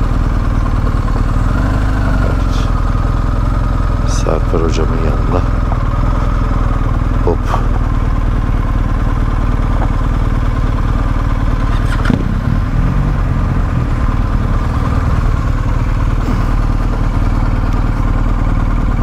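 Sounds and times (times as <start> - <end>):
motorcycle engine drone: 0.0 - 19.0
wind noise: 11.6 - 13.4.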